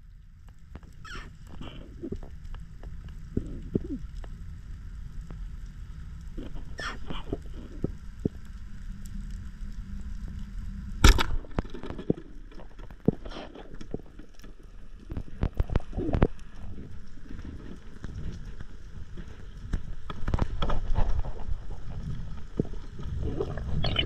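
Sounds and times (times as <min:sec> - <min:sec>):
low underwater rumble: 0:00.0 - 0:24.0
speargun firing crack: 0:11.0 - 0:11.6.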